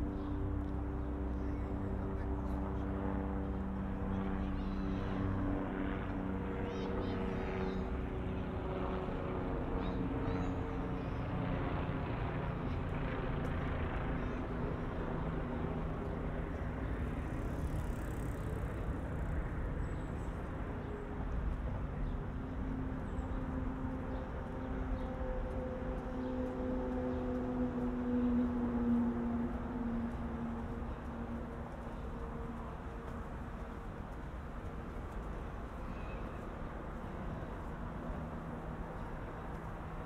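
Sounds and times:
city traffic: 0.0 - 40.0
steady engine tone: 22.7 - 40.0.

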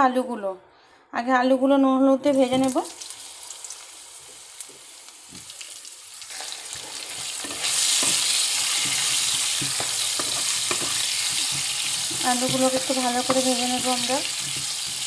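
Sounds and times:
potatoes sizzling in hot oil: 2.3 - 15.0
spatula knocking against pan: 8.0 - 15.0.

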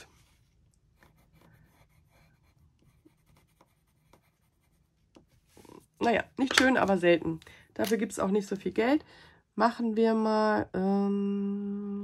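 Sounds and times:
pencil scratching on paper: 0.0 - 6.3.

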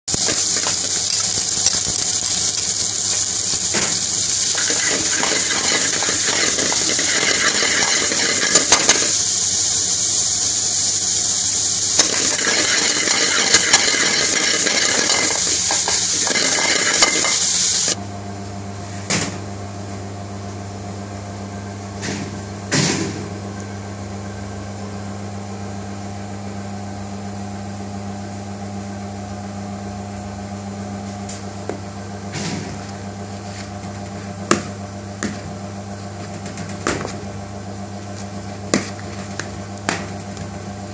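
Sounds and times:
onion and garlic sizzling in oil: 0.1 - 18.0
metal spatula scraping pan: 4.5 - 9.1, 12.0 - 18.0.

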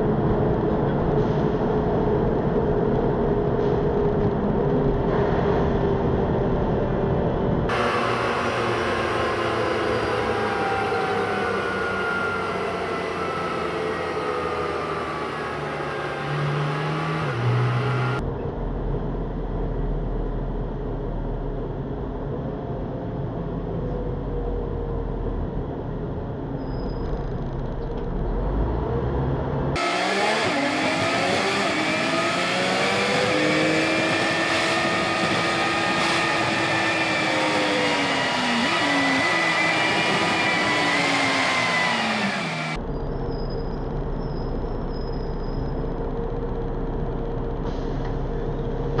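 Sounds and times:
bus rumble: 0.0 - 49.0
vehicle motor whine: 7.6 - 18.2, 29.8 - 49.0.

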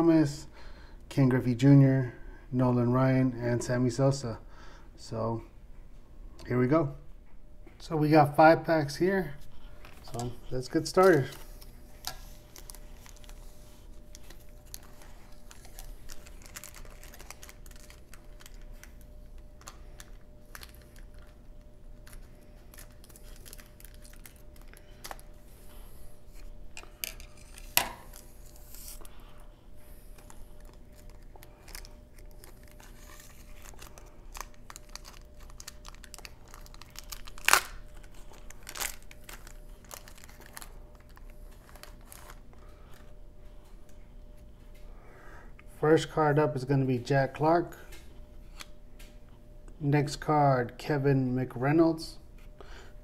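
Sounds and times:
wax paper wrapper crinkling: 9.1 - 44.0.

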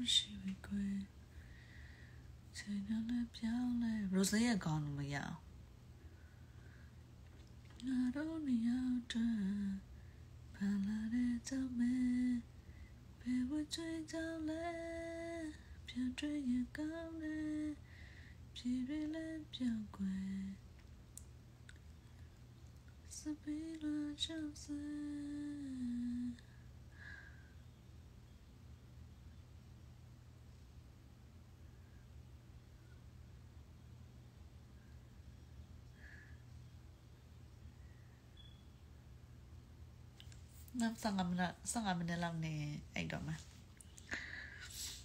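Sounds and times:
woman softly humming: 23.1 - 26.5.

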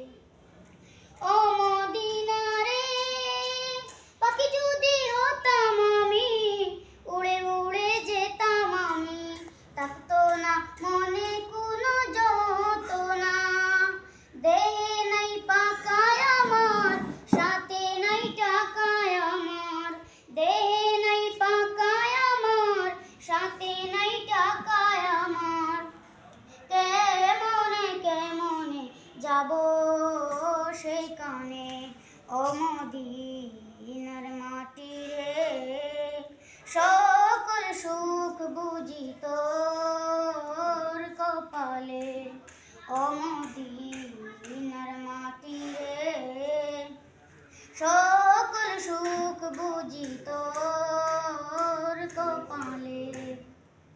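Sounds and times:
boys singing together: 1.3 - 25.9, 47.8 - 53.6.

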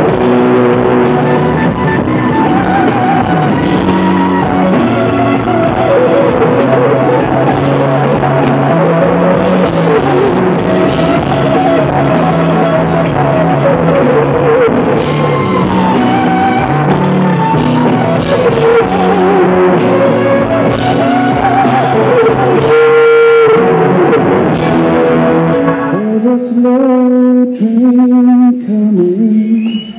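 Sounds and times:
electric guitar solo: 0.0 - 27.1
live rock band playing: 0.0 - 27.9.

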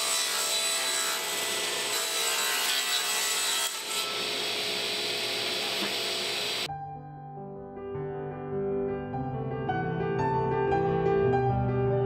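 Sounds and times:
table saw cutting wood: 0.0 - 6.7.

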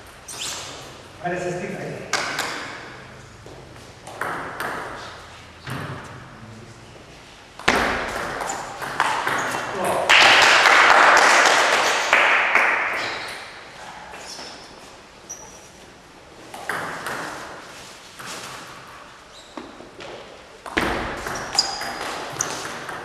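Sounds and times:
table tennis ball pinging: 4.0 - 5.0, 7.6 - 10.0, 20.6 - 23.0.

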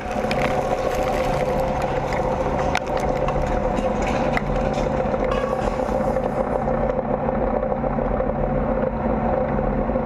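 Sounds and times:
small clicks and crackles: 0.0 - 7.0
droning whine: 0.0 - 10.0
tank engine rumbling: 0.0 - 10.0.

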